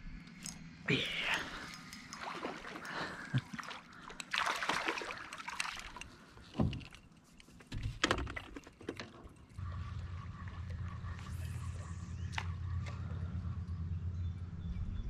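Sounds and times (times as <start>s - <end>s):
water lapping against boat hull: 2.1s - 7.0s.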